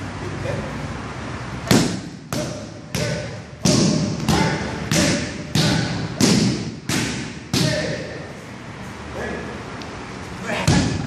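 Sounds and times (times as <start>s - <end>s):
gloved strikes slapping pads: 1.7s - 7.8s.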